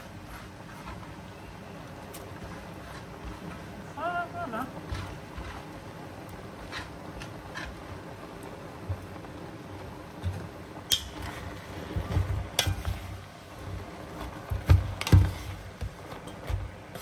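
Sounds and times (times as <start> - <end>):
wooden spatula stirring in pot: 0.0 - 17.0.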